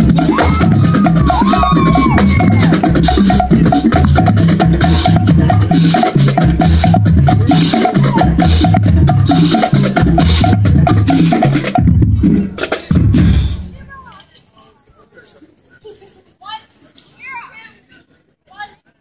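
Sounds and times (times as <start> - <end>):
steady clicking beat: 0.0 - 11.9
marching band playing: 0.0 - 14.1.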